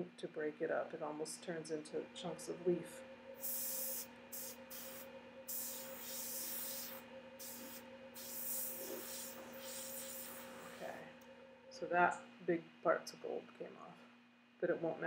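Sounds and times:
compressed air blasts hissing: 0:03.4 - 0:11.0.

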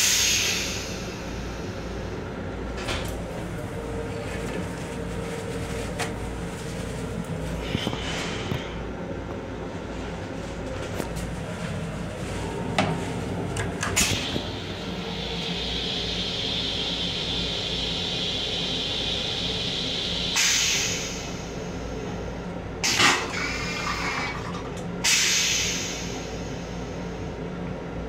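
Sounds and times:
toilet flush hiss and rush: 0:00.0 - 0:01.8, 0:13.8 - 0:21.9, 0:22.8 - 0:27.0
train low rumble: 0:00.0 - 0:28.0.

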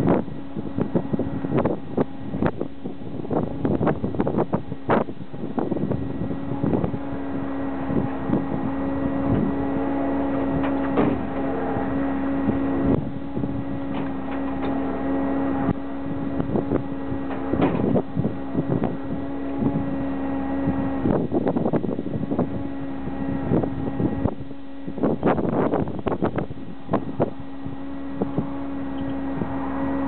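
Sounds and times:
steady machine hum: 0:00.0 - 0:30.0
wind buffeting microphone: 0:00.0 - 0:30.0.

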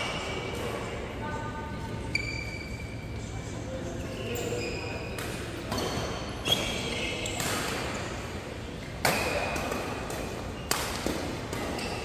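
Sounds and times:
racket hitting shuttlecock: 0:09.0 - 0:12.0.

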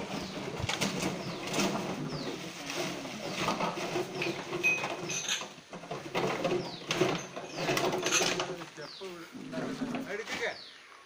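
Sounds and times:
plastic bottles clattering: 0:00.0 - 0:08.7.

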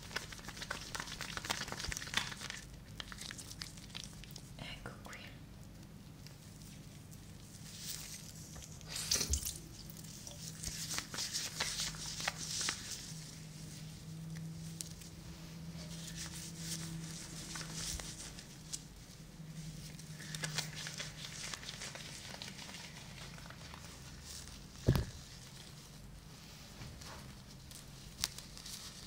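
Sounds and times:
shampoo lather squishing in hair: 0:00.0 - 0:04.5, 0:20.0 - 0:24.8.

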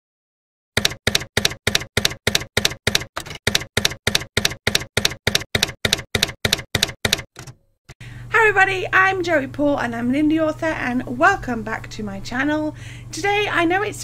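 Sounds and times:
typewriter key clacks: 0:00.8 - 0:07.6.

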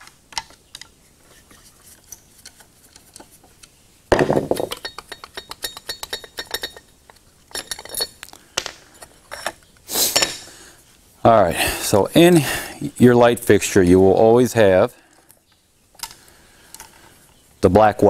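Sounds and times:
metal parts clicking and clinking: 0:04.4 - 0:10.5.

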